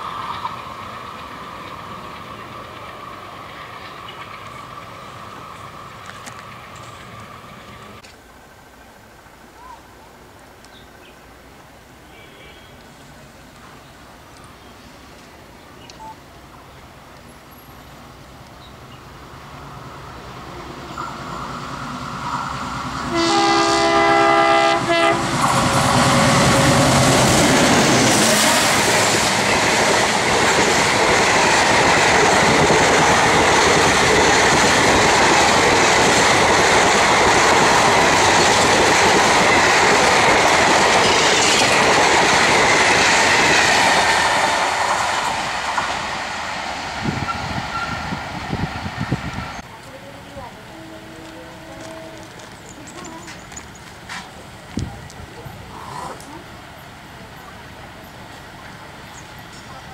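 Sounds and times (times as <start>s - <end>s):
clickety-clack over rail joints: 0.0s - 8.2s, 24.6s - 48.0s, 51.2s - 56.3s
train wheels rumbling on rail: 0.0s - 8.2s, 17.0s - 59.9s
train horn: 12.1s - 12.8s, 23.0s - 26.9s, 50.7s - 52.4s.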